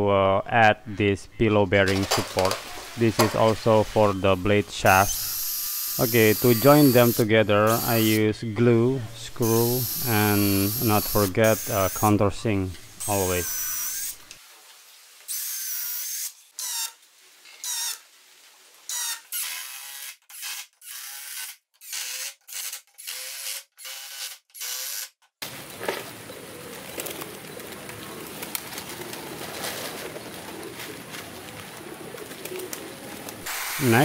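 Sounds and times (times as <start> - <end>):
cordless drill whirring: 5.1 - 8.2, 18.9 - 25.1
pigeons cooing: 25.7 - 33.4.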